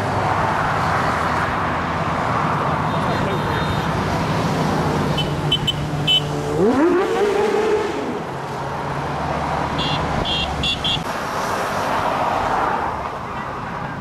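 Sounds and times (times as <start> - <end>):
motorcycles passing: 0.0 - 14.0
motorcycle engine revving: 5.2 - 8.2.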